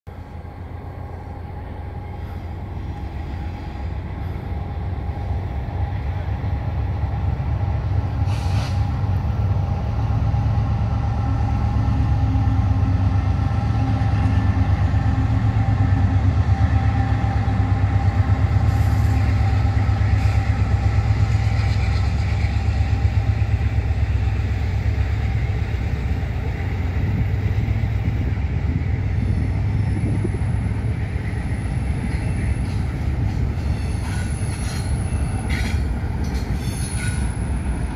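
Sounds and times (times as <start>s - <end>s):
freight train rumbling past: 0.1s - 37.9s
brief high hisses: 8.2s - 8.9s.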